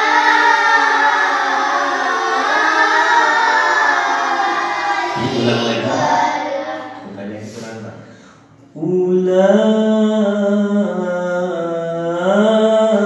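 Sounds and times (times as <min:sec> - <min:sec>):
children reciting in unison: 0:00.0 - 0:08.1
man speaking: 0:07.0 - 0:08.2.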